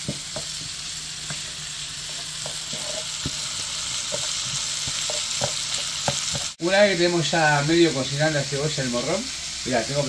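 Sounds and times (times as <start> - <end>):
wooden spoon scraping a pan: 0.0 - 6.6
vegetables sizzling in oil: 0.0 - 10.0.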